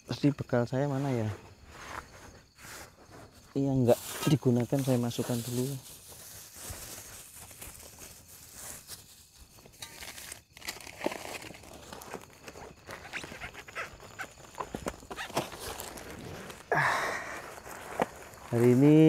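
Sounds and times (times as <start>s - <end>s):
camping gear rustling and crinkling: 0.1s - 19.0s
footsteps on dirt: 11.9s - 19.0s.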